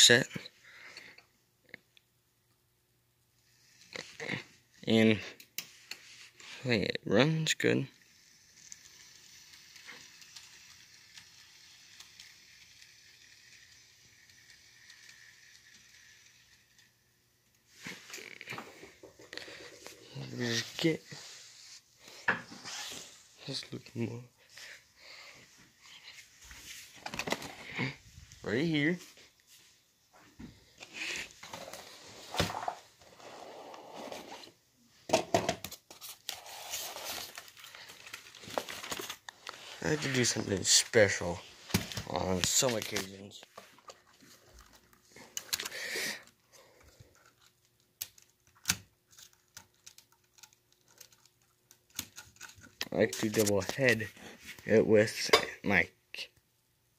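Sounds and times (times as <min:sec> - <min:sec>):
model locomotive whirring: 0:03.4 - 0:06.5, 0:07.4 - 0:18.4.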